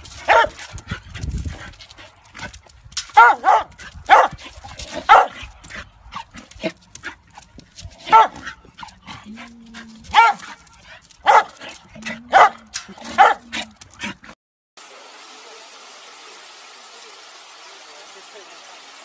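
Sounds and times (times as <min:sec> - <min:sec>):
dog barking high-pitched: 0:00.3 - 0:00.6, 0:03.1 - 0:04.4, 0:05.0 - 0:05.4, 0:08.0 - 0:08.6, 0:10.1 - 0:10.6, 0:11.2 - 0:13.7.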